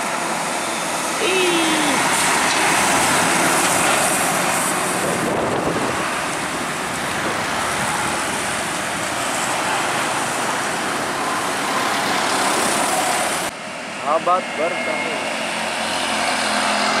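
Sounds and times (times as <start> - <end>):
tyres hissing on wet asphalt: 0.0 - 13.5
dump truck passing: 0.0 - 13.9
cars passing: 1.0 - 17.0.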